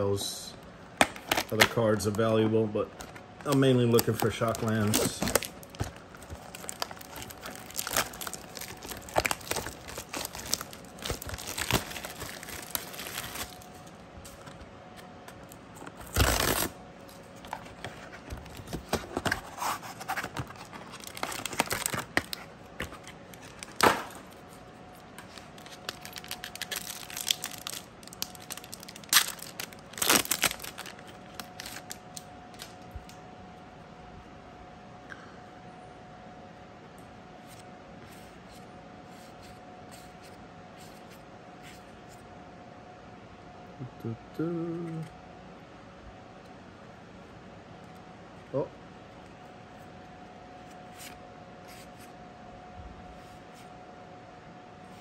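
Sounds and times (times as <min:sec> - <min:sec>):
plastic wrapper crinkling and tearing: 0:01.1 - 0:02.3, 0:03.0 - 0:13.9, 0:16.0 - 0:16.8, 0:17.5 - 0:24.6, 0:25.2 - 0:33.1
wrapper ripping: 0:03.5 - 0:13.9, 0:16.0 - 0:16.8, 0:20.4 - 0:24.4, 0:25.4 - 0:32.7.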